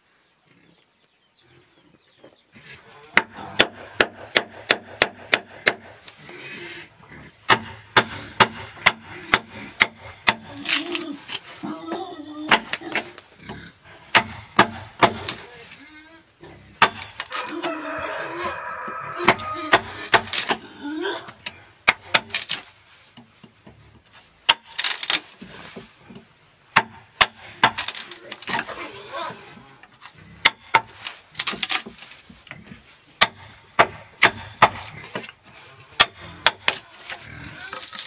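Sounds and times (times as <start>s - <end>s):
blade chopping bamboo: 3.1s - 6.3s, 7.4s - 13.2s, 14.0s - 15.5s, 16.8s - 17.6s, 19.2s - 20.7s, 21.3s - 23.6s, 24.4s - 28.9s, 30.0s - 38.0s
bamboo fibres cracking: 7.5s - 16.0s, 16.8s - 17.9s, 19.0s - 38.0s.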